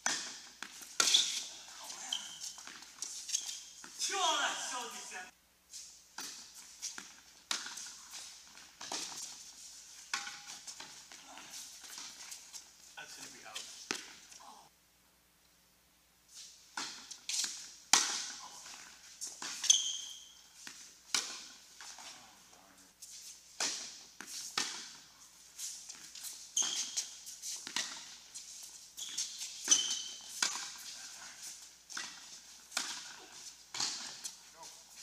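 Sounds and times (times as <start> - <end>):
shoes squeaking on court: 0.0 - 14.4, 16.4 - 22.4, 23.0 - 35.0
ball bouncing: 13.9 - 14.2, 27.6 - 28.2
racquet hitting ball: 16.8 - 20.4, 23.6 - 25.1, 29.6 - 34.4.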